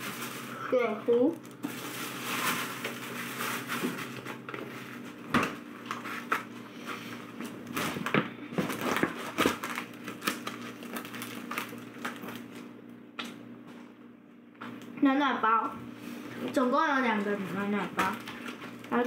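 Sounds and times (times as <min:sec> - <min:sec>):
packaging rustling and crinkling: 0:00.0 - 0:00.6, 0:01.3 - 0:05.1, 0:07.4 - 0:12.7, 0:17.9 - 0:19.0.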